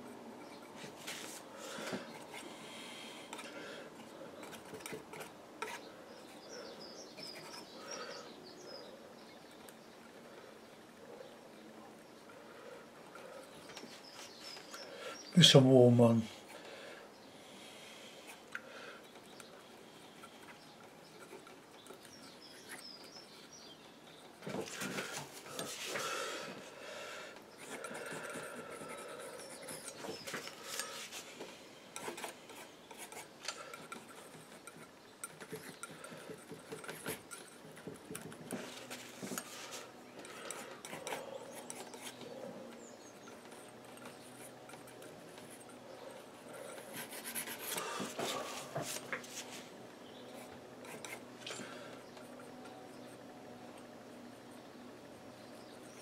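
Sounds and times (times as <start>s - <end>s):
palette knife scraping paint: 27.5s - 31.3s, 31.9s - 51.9s.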